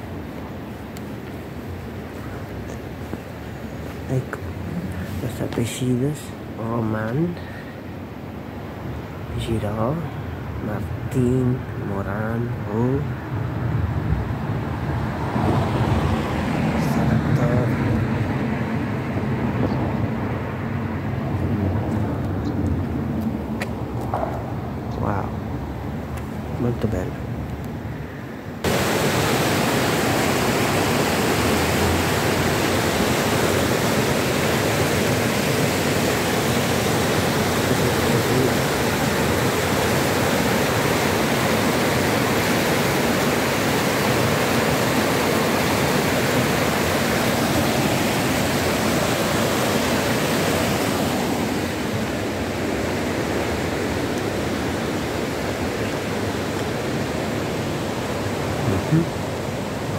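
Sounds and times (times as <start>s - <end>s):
river rushing over rocks: 28.6s - 59.9s.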